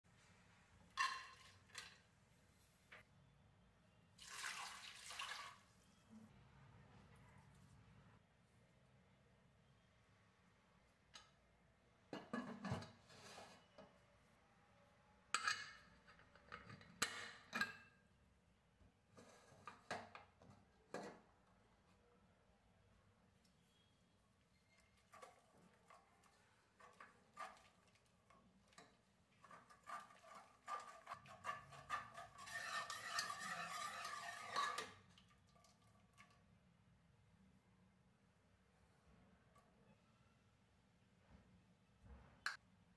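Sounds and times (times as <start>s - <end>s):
steel ladle scraping metal pot: 24.5s - 35.1s
metal lid clattering on pot: 32.4s - 35.0s.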